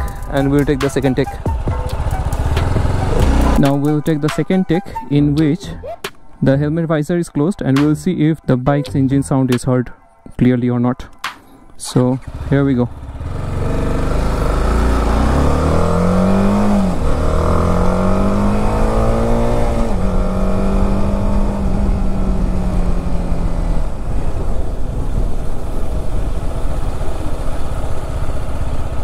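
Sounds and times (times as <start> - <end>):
motorcycle engine accelerating: 0.0 - 4.0, 12.1 - 29.0
low wind rumble: 12.1 - 29.0.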